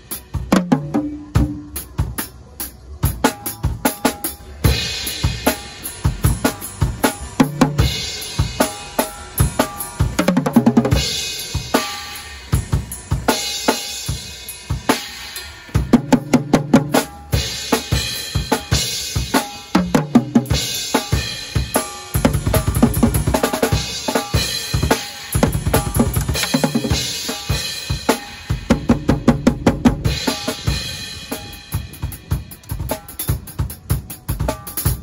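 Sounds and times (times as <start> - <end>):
drums struck: 0.0 - 35.0
cymbals crashing: 4.7 - 10.2.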